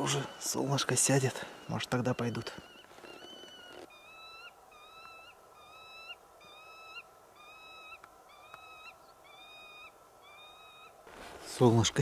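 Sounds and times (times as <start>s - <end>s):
bird whistling: 1.5s - 10.9s.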